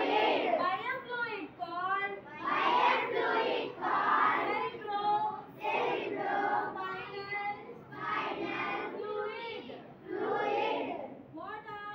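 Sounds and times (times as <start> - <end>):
children reciting in unison: 0.0 - 0.6, 2.3 - 11.2.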